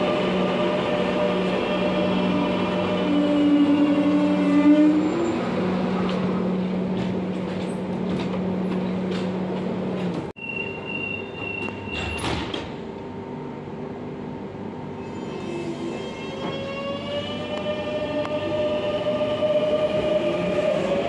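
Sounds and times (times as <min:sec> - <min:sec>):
train humming at platform: 0:00.0 - 0:21.0
door-closing warning tone: 0:10.4 - 0:12.6
train doors clunking shut: 0:11.4 - 0:12.9.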